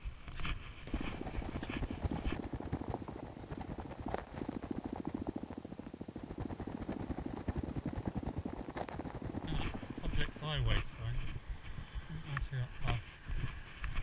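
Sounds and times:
footsteps on wet lane: 0:07.5 - 0:11.0.

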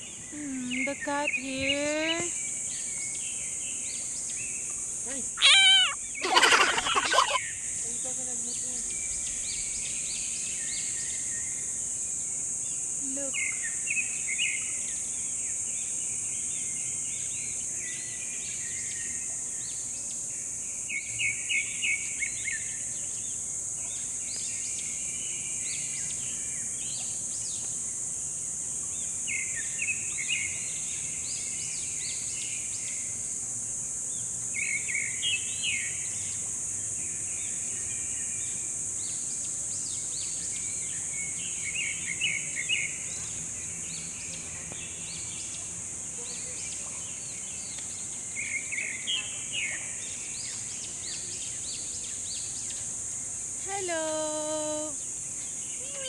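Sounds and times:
birds chirping: 0:00.0 - 0:10.8
high-pitched insect buzz: 0:00.0 - 0:45.5, 0:46.1 - 0:56.0.

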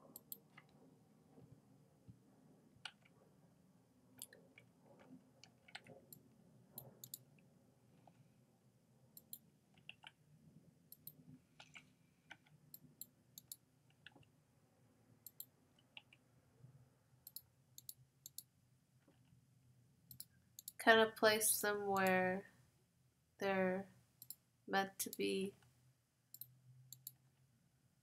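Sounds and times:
keyboard and mouse clicking: 0:00.0 - 0:00.7, 0:04.2 - 0:06.2, 0:06.8 - 0:07.2, 0:09.2 - 0:10.2, 0:10.9 - 0:14.2, 0:15.2 - 0:16.2, 0:17.2 - 0:18.5, 0:26.3 - 0:27.2
low room hum: 0:00.0 - 0:28.0.

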